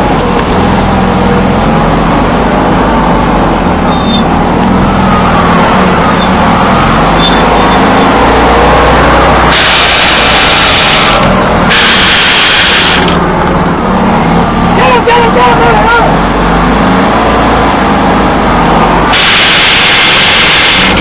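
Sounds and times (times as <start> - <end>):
vehicle engine running: 0.0 - 21.0
loud hiss burst: 9.5 - 13.2, 19.1 - 21.0.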